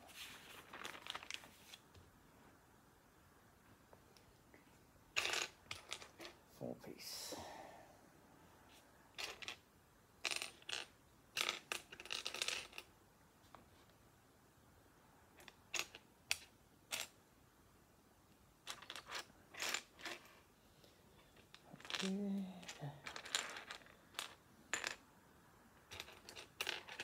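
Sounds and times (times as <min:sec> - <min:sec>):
plastic bricks clicking and clattering: 0:05.2 - 0:06.4, 0:09.2 - 0:09.6, 0:10.2 - 0:12.9, 0:15.4 - 0:17.1, 0:18.7 - 0:20.3, 0:21.3 - 0:25.0, 0:25.9 - 0:27.0.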